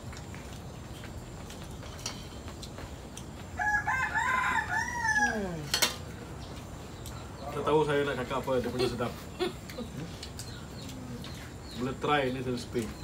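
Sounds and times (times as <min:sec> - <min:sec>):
rooster crowing: 0:03.5 - 0:05.7.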